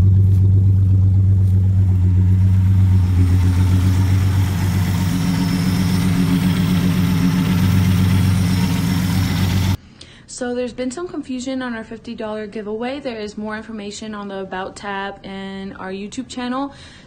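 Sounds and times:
loud car engine idling: 0.0 - 9.8.

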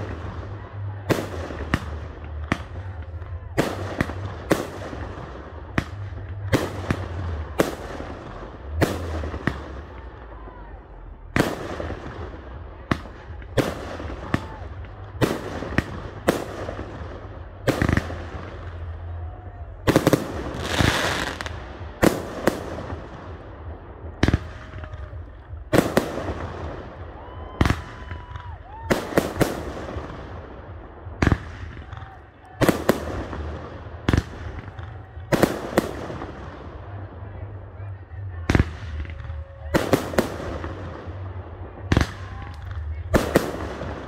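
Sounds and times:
firework crackle: 11.2 - 36.7.

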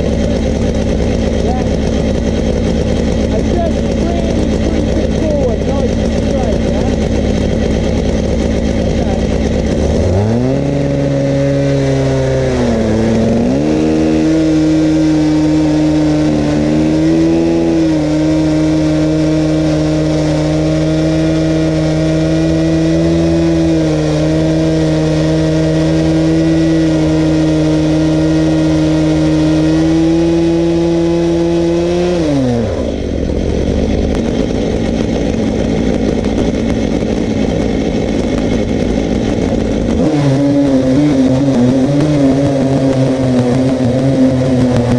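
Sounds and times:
chainsaws cutting log: 0.0 - 44.9.

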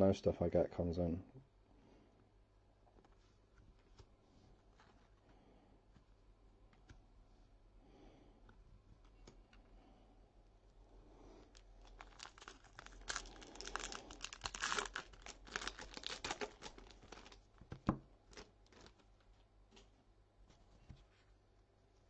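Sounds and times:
foil wrapper tearing and crinkling: 11.5 - 19.0
cards rustling and clicking: 11.6 - 19.1.

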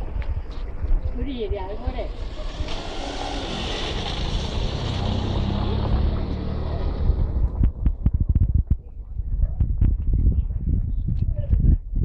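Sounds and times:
vehicle engine running: 1.9 - 9.6.

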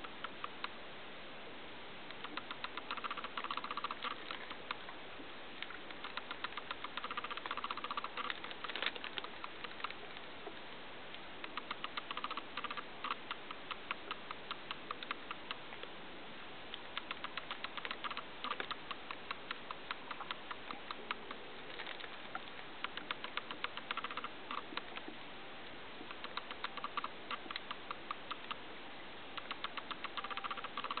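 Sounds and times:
claws ticking on plastic keyboard: 2.1 - 4.9, 5.6 - 10.2, 11.4 - 15.6, 16.9 - 25.1, 26.1 - 28.6, 29.4 - 31.0
hamster sniffing: 2.3 - 4.7, 5.8 - 9.8, 11.4 - 15.5, 17.0 - 21.4.

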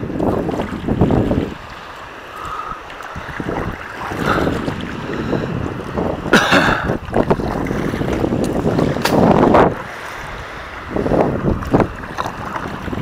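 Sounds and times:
paddle splashing in water: 0.0 - 13.0
wind rumbling on microphone: 0.0 - 13.0.

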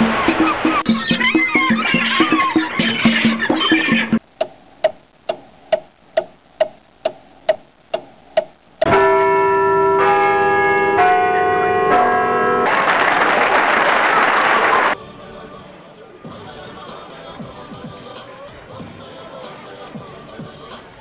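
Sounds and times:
crowd noise: 0.0 - 4.2, 12.6 - 21.0
clock ticking: 0.8 - 8.9
clock chiming bell notes: 8.9 - 12.7.

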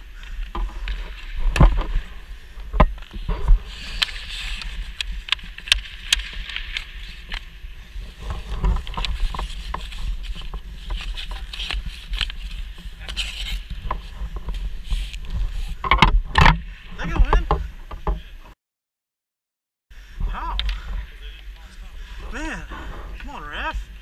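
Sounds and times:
steady low rumble: 20.0 - 24.0.

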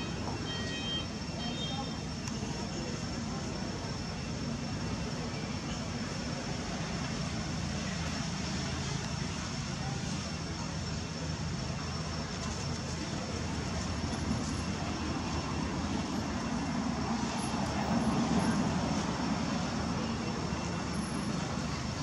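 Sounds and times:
faint high steady tone: 0.0 - 7.2.

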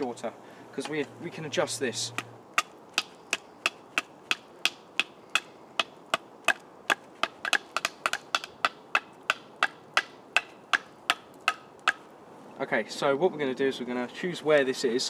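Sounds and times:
knife chopping wood: 2.2 - 12.0.

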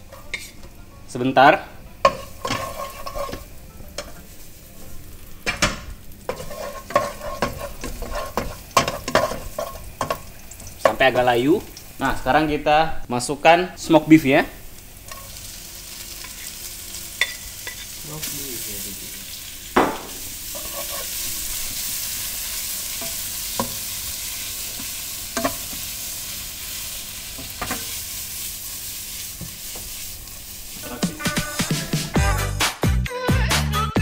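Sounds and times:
meat sizzling in oil: 1.8 - 12.5, 13.8 - 31.7
wooden spatula knocking pan: 19.8 - 20.2.

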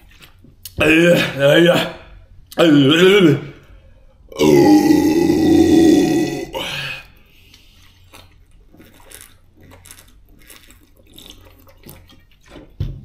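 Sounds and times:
person swallowing: 4.4 - 6.9.

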